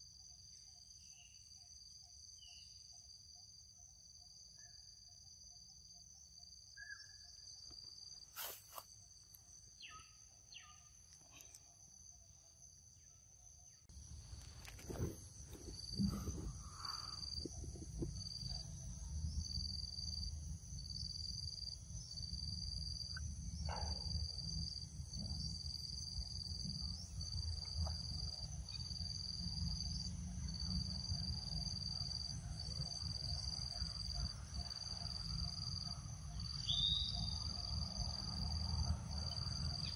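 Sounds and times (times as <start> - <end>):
insects droning: 0.0 - 39.9
pulsing insect chirp: 0.0 - 39.9.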